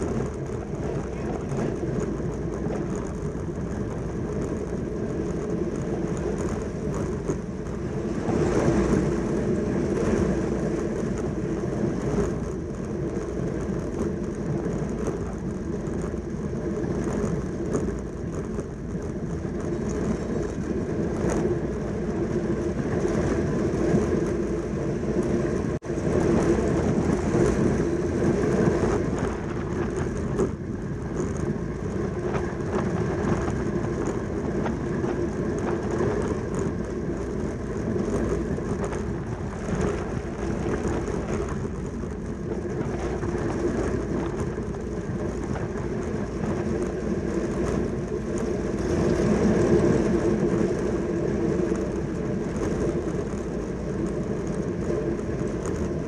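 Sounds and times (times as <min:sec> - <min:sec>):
bicycle tyres and chain humming: 0:00.0 - 0:56.0
wind rush over microphone: 0:00.0 - 0:56.0.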